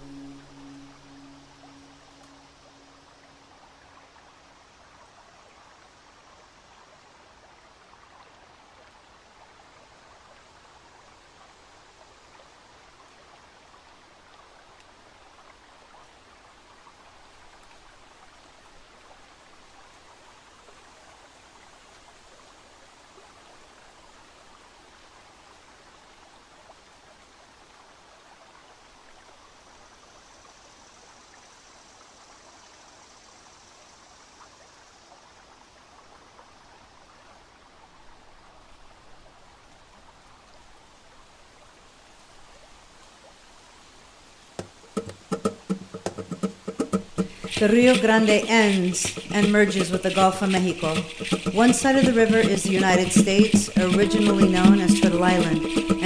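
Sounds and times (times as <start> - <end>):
faint higher hiss: 0.0 - 6.5
river water rushing: 44.6 - 56.0.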